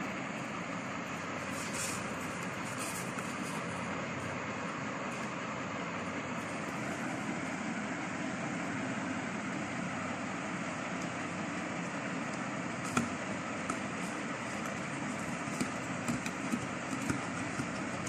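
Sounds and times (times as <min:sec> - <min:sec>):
steady background hum and hiss: 0:00.0 - 0:18.0
hands tapping plastic and metal: 0:14.5 - 0:18.0.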